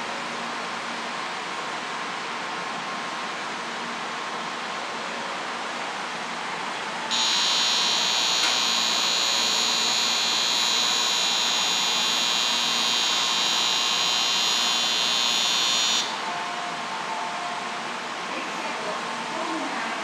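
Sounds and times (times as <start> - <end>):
electric departure bell ringing: 7.1 - 16.3.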